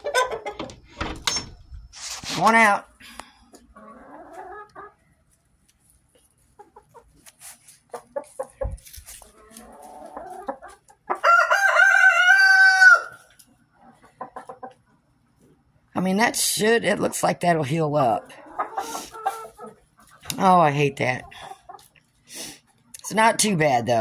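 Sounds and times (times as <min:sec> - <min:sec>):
chickens clucking softly: 0:00.0 - 0:00.8, 0:03.5 - 0:15.6, 0:18.2 - 0:20.4, 0:21.0 - 0:22.9
rooster crowing: 0:11.2 - 0:13.2.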